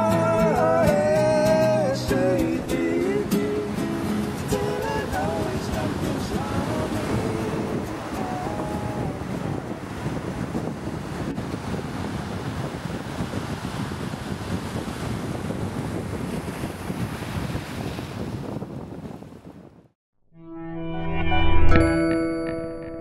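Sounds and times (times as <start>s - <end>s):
ocean waves: 0.0s - 19.5s
bright chime tone: 20.4s - 23.0s.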